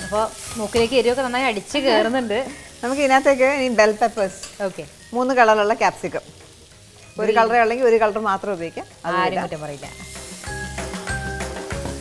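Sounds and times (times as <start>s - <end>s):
woman talking: 0.0s - 6.2s, 7.2s - 9.9s
vegetables sizzling in a pan: 0.0s - 12.0s.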